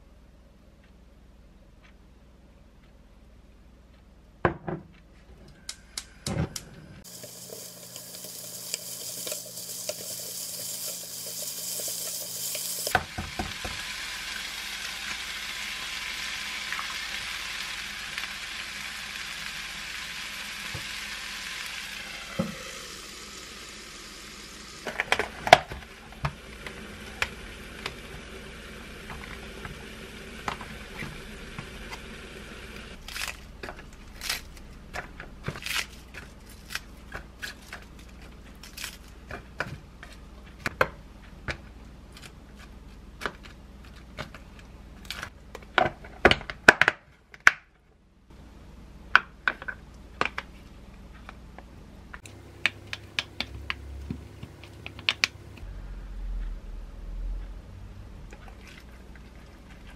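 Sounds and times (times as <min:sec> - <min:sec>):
food sizzling in a pan: 0:07.0 - 0:33.0.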